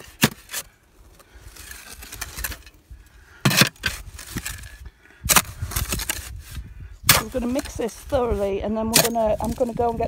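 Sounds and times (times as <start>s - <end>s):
shovel clanking on wheelbarrow: 8.9s - 9.8s.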